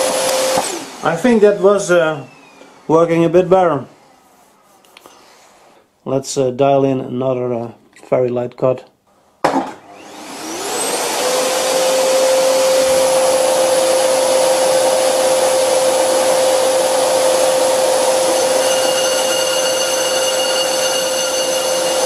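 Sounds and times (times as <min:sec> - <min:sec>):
lathe motor whine: 0:00.0 - 0:03.4, 0:09.9 - 0:22.0
higher steady tones: 0:16.2 - 0:22.0.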